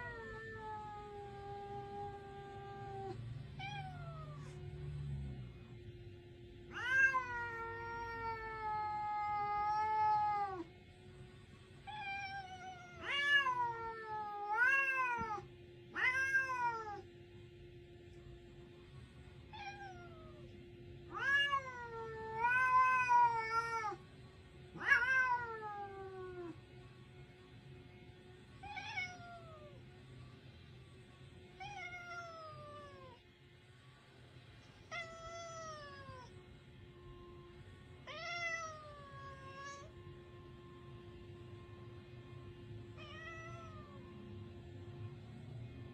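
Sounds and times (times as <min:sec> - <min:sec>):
cat yowling: 0:00.0 - 0:04.7, 0:06.7 - 0:10.7, 0:11.8 - 0:17.1, 0:19.5 - 0:20.5, 0:21.1 - 0:24.0, 0:24.7 - 0:26.6, 0:28.6 - 0:29.8, 0:31.6 - 0:33.2, 0:34.9 - 0:36.4, 0:38.0 - 0:40.0, 0:43.0 - 0:44.2.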